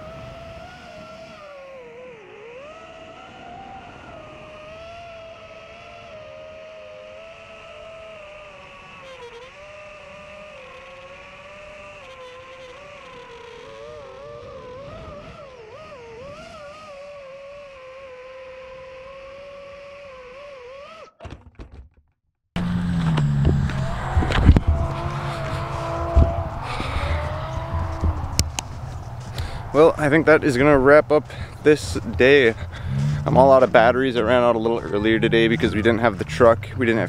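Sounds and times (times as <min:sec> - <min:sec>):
drone motors whining: 0:00.0 - 0:21.2, 0:22.6 - 0:37.0
low hum: 0:22.6 - 0:37.0.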